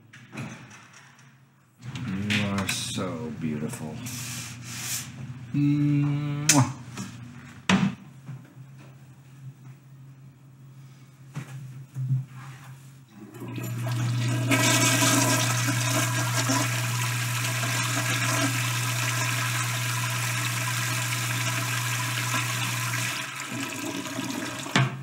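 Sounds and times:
toilet flushing: 13.1s - 25.0s.

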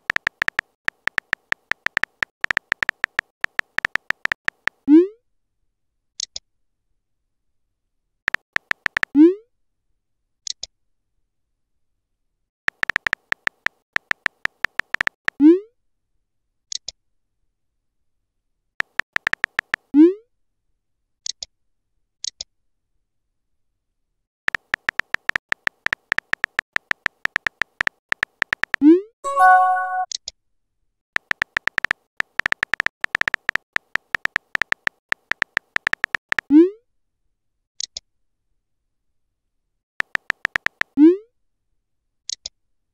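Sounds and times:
phone keyboard typing clicks: 0.0s - 4.8s, 8.3s - 9.1s, 12.7s - 15.2s, 18.8s - 19.9s, 24.5s - 30.1s, 31.2s - 36.5s, 40.0s - 41.0s
high-pitched blips: 29.3s - 30.1s.

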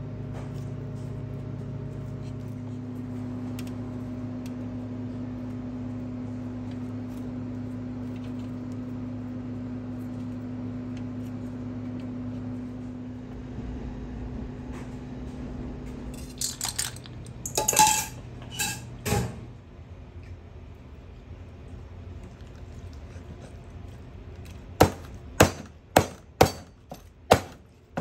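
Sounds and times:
kitchen equipment humming: 0.0s - 28.0s
kitchenware clinking and clattering: 16.2s - 19.4s.

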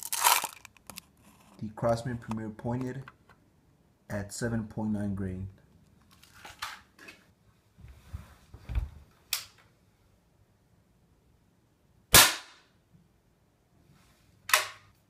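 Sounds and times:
air rifle shot: 12.1s - 12.6s.

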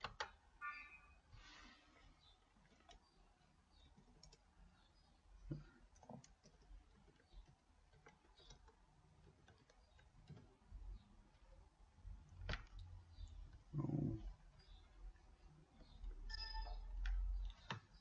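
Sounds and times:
faint keyboard keystrokes: 5.4s - 10.6s.

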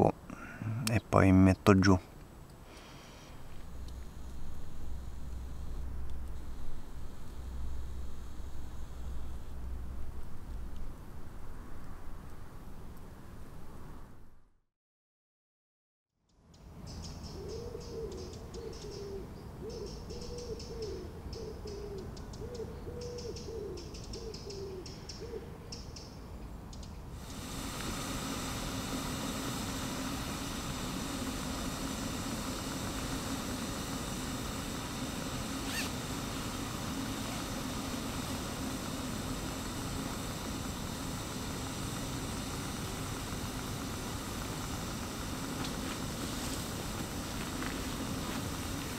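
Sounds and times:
camp stove hissing: 2.6s - 11.3s, 27.2s - 48.9s
owl calls: 17.2s - 25.6s, 35.6s - 36.0s.

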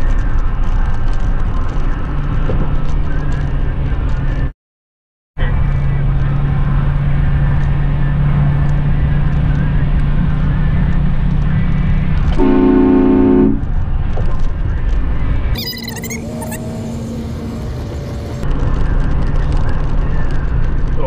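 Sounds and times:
car road and engine noise: 0.0s - 4.5s, 5.4s - 21.0s
car horn: 12.4s - 13.7s.

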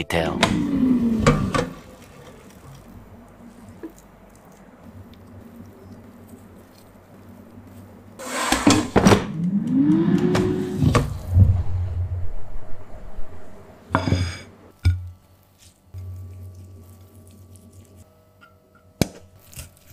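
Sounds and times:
drawer squealing: 8.2s - 11.2s.

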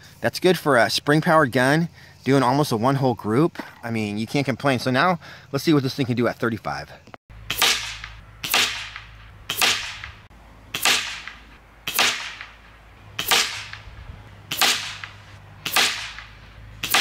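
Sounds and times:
air rifle shots: 7.5s - 17.0s.

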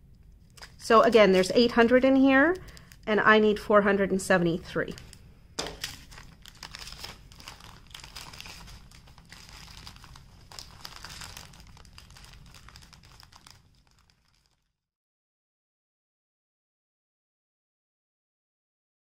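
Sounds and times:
plastic bags crinkling: 0.4s - 3.1s, 4.8s - 14.7s.

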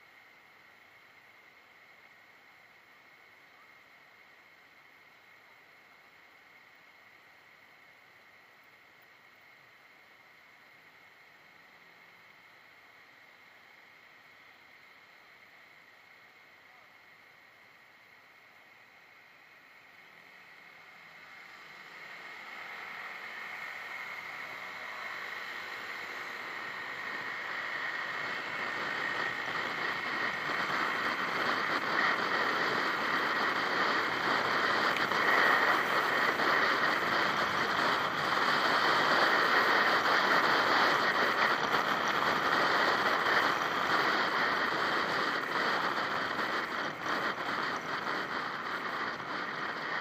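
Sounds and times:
wind rushing over microphone: 25.1s - 50.0s.

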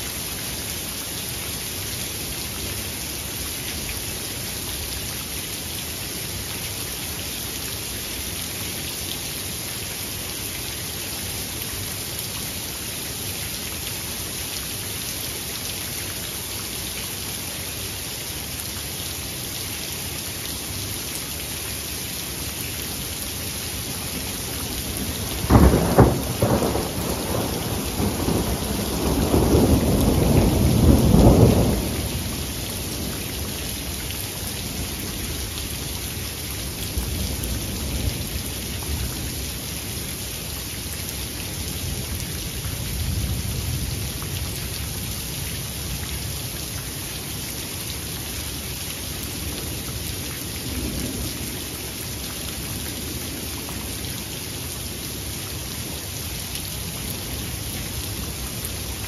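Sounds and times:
steady rain: 0.0s - 59.0s
thunder rumbling: 24.6s - 33.2s.

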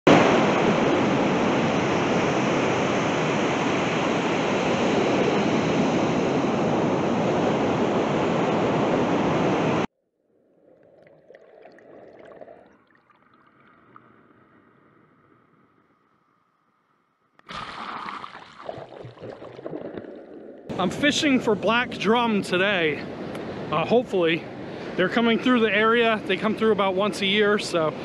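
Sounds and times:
ocean surf rushing: 0.1s - 9.9s, 20.7s - 28.0s
shallow water swirling: 10.2s - 16.0s, 17.4s - 20.7s.

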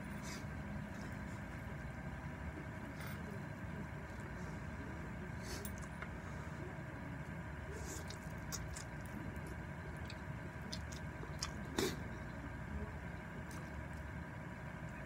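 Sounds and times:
steady background hum: 0.0s - 15.0s
slurping and chewing noodles: 7.7s - 12.2s.

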